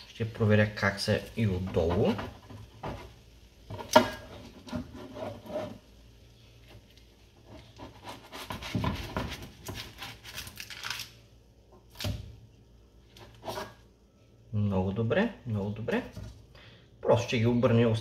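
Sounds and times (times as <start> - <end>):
spatula scraping baking tray: 1.5 - 6.0, 7.4 - 10.4, 13.1 - 13.9.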